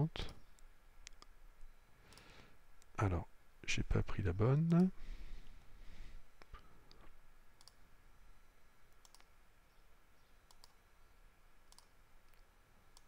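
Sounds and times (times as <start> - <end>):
low room hiss: 0.0 - 13.0
computer mouse clicks: 2.1 - 2.9, 7.6 - 7.8, 8.9 - 9.3, 10.5 - 10.8, 11.7 - 13.0.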